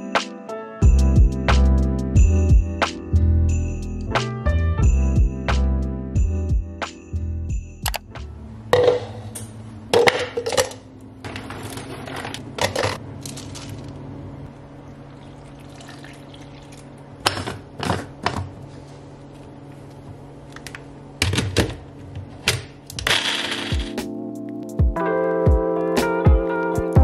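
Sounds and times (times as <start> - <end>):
liquid pouring: 14.8 - 17.0.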